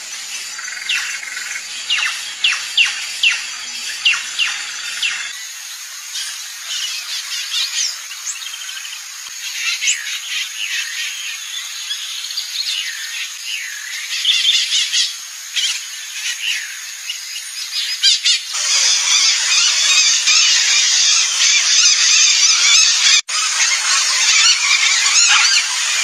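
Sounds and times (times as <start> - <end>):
whistled birdsong: 0.0 - 5.6, 6.2 - 26.0
macaws squawking: 18.6 - 26.0.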